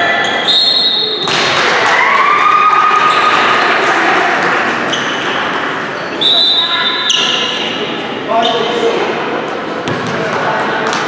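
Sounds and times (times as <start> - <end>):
sneaker squeaks: 0.0 - 1.3, 4.8 - 8.8
people cheering and shouting: 1.0 - 6.0.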